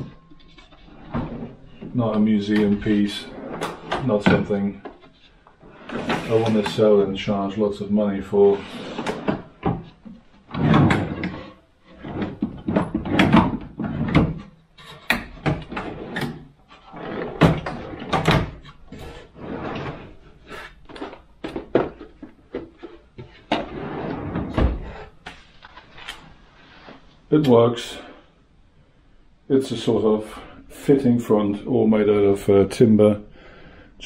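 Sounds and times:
drawers sliding on slides: 0.0 - 7.1, 8.3 - 27.1
drawers knocking shut: 10.5 - 16.4, 17.1 - 20.1, 23.5 - 25.0.

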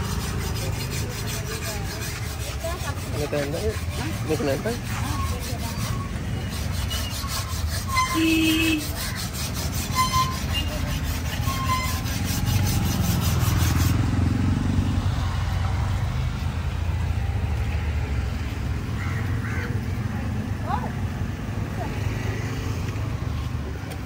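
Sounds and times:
knife scraping on sharpening stone: 0.1 - 13.9.

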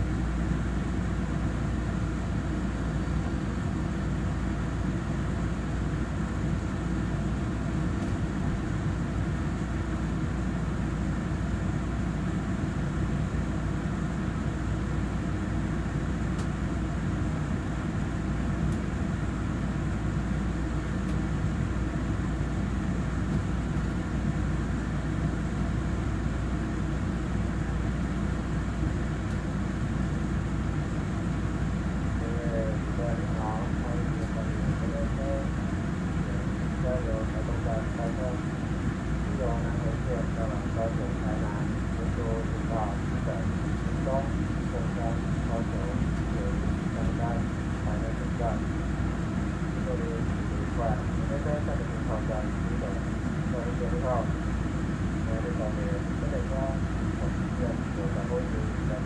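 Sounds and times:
train carriage hum and rumble: 0.0 - 59.0.

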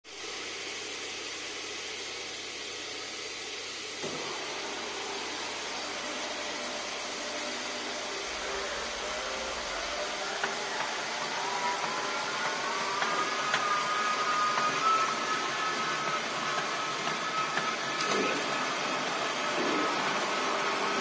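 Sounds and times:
woodworking machine rushing noise: 0.1 - 21.0
faint whining tones: 5.7 - 21.0.

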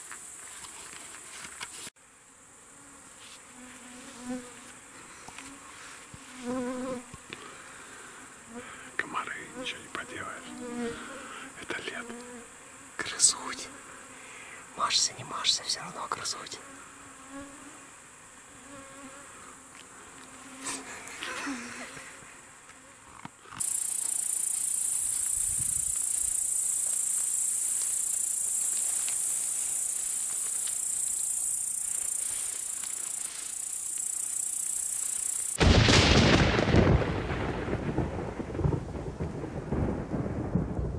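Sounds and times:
high-pitched insect chorus: 0.0 - 1.9, 7.4 - 16.6, 23.5 - 36.6
mosquitoes whining: 2.5 - 15.0.

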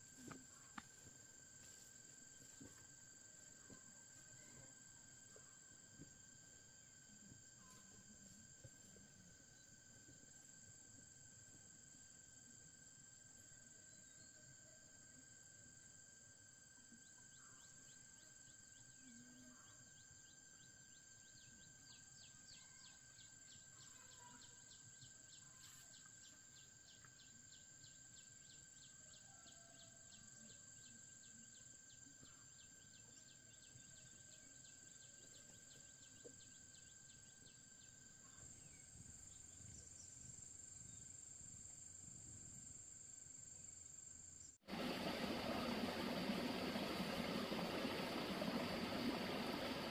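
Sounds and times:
insect chirps: 0.0 - 49.9
insects buzzing: 0.0 - 49.9
loud rushing hiss: 44.7 - 49.9.

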